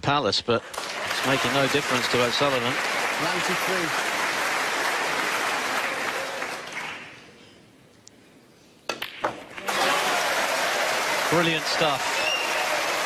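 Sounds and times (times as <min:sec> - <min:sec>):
audience applauding: 0:00.7 - 0:07.2, 0:09.5 - 0:13.0.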